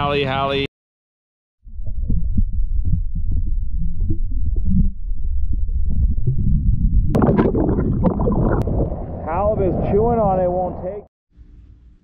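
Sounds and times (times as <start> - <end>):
muffled underwater rumble: 1.7 - 11.0
water splashing and bubbling: 7.1 - 9.3.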